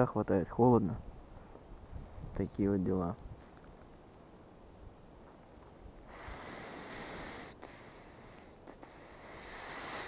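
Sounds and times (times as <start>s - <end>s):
breathy hiss: 6.1s - 10.0s
high-pitched decoy whistle: 6.1s - 10.0s.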